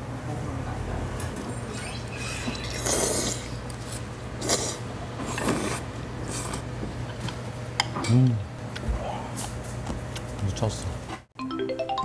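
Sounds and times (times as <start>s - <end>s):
person slurping noodles: 1.7s - 6.6s.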